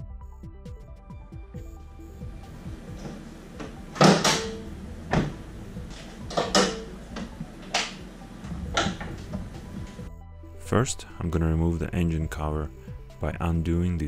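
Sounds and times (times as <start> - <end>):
knocks and clunks: 2.3 - 10.1.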